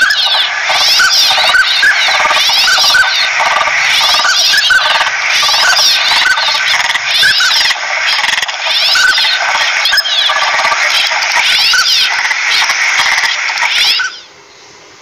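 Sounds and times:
flock of ducks calling: 0.0s - 14.3s.

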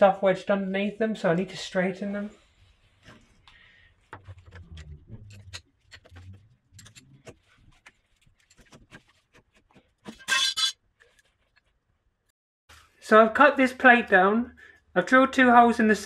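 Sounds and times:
metal scrape: 10.1s - 10.8s.

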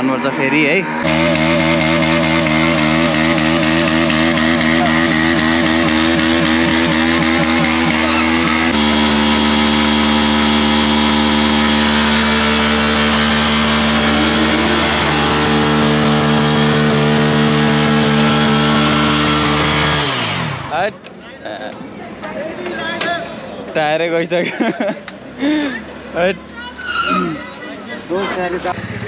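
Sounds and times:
motorcycle engine at high revs: 0.0s - 20.9s, 28.6s - 29.0s.

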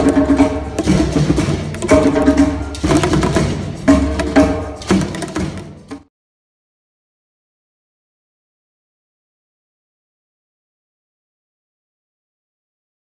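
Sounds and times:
hand drums: 0.0s - 6.1s
pitched accompaniment: 0.0s - 6.1s.

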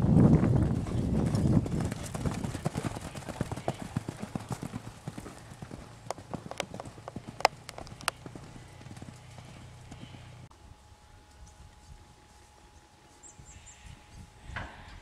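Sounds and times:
horses galloping on sand: 0.0s - 10.5s
sharp clicks: 6.0s - 8.2s.

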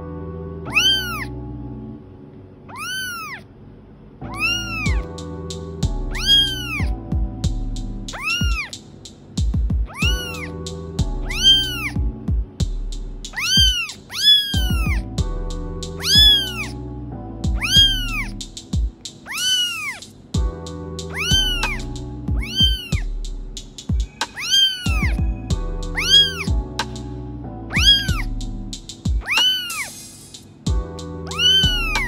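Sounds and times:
background music: 0.0s - 2.3s, 4.2s - 19.4s, 20.0s - 32.0s
kitten meowing: 0.7s - 1.3s, 2.7s - 3.4s, 4.3s - 5.1s, 6.1s - 6.9s, 8.1s - 8.8s, 9.9s - 10.5s, 11.2s - 12.0s, 13.3s - 15.1s, 16.0s - 16.8s, 17.6s - 18.4s, 19.2s - 20.1s, 21.1s - 23.1s, 24.0s - 26.5s, 27.7s - 28.3s, 29.2s - 30.0s, 31.3s - 32.0s.

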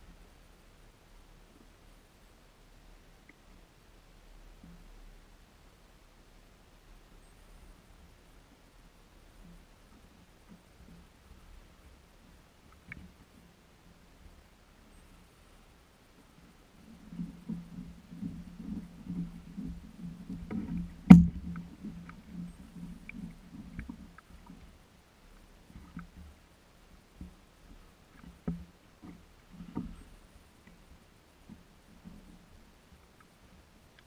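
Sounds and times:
waves lapping against kayak hull: 9.3s - 34.0s
sharp knock on hull: 21.0s - 21.6s.

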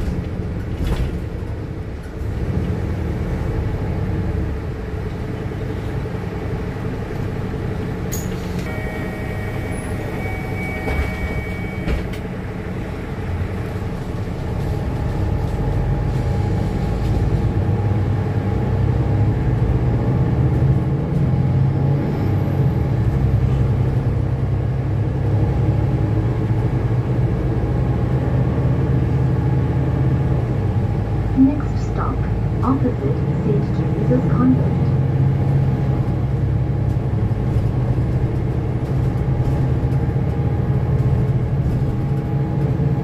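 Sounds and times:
bus engine drone: 0.0s - 43.0s.

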